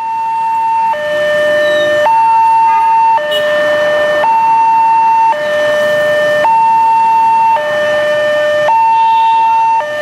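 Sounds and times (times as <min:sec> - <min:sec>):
level crossing two-tone alarm: 0:00.0 - 0:10.0.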